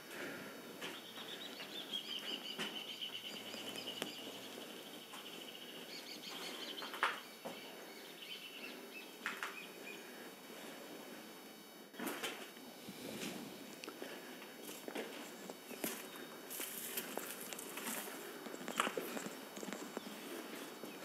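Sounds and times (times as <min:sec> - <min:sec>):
bird calling: 0:00.8 - 0:10.2.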